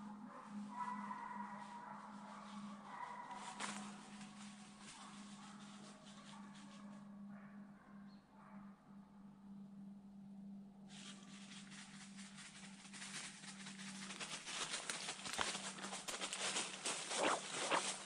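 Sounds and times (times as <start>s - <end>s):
low steady hum: 0.0s - 18.0s
footsteps crunching through dry leaves: 2.5s - 5.8s, 10.9s - 18.0s.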